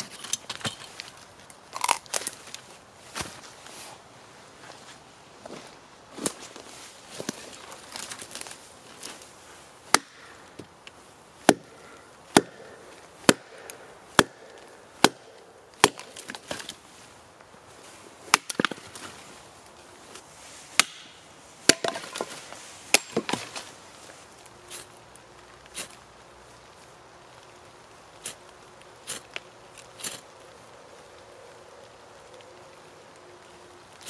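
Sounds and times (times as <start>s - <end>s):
axe chopping firewood: 9.9s - 10.7s, 11.4s - 16.7s, 18.3s - 18.8s, 20.8s - 22.3s, 22.9s - 23.6s.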